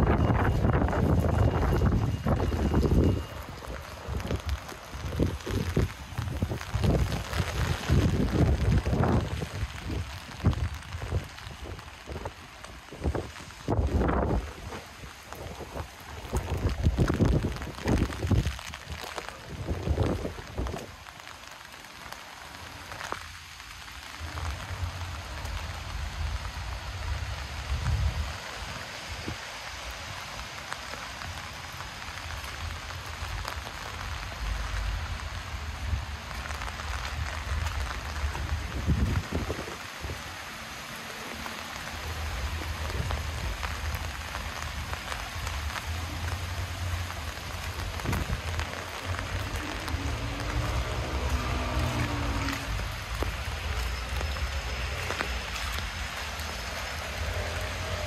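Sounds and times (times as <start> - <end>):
rain drops ticking: 0.0 - 58.0
steady rain hiss: 0.0 - 58.0
low rumble: 45.7 - 58.0.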